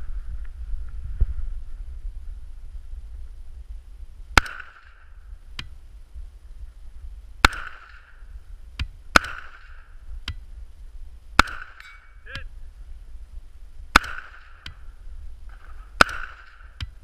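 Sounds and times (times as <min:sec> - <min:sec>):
rifle shots: 0:04.4 - 0:05.1, 0:07.4 - 0:08.2, 0:09.1 - 0:09.9, 0:11.4 - 0:12.3, 0:13.9 - 0:14.8, 0:15.5 - 0:17.0.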